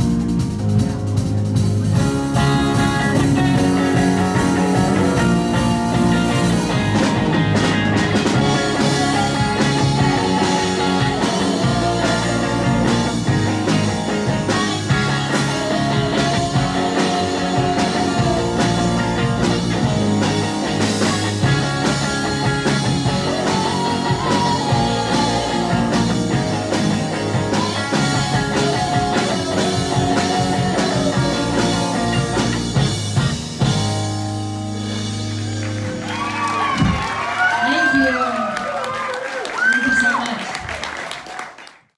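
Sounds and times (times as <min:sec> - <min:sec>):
drum kit: 0:00.0 - 0:38.2
live rock band playing: 0:00.0 - 0:38.6
woman singing lead vocal: 0:08.6 - 0:13.5, 0:15.1 - 0:19.1, 0:21.6 - 0:26.9, 0:27.5 - 0:32.2.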